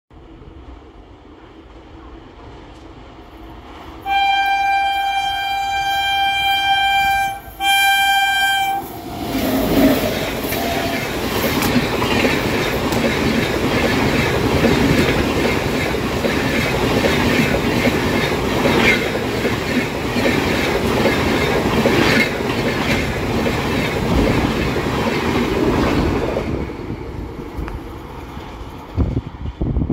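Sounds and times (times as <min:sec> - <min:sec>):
train passing with steady rush: 0:00.1 - 0:29.9
train horn blast: 0:04.0 - 0:11.2.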